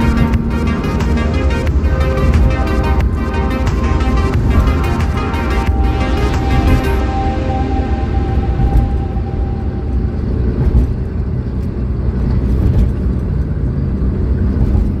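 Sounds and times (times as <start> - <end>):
held musical tone: 0.0 - 12.3
car road and engine rumble: 0.0 - 15.0.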